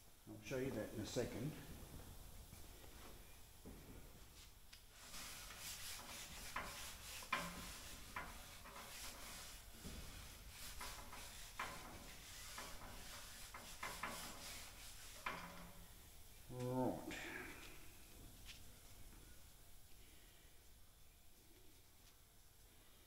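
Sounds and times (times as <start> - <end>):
sandpaper rubbing strokes: 5.0 - 15.7.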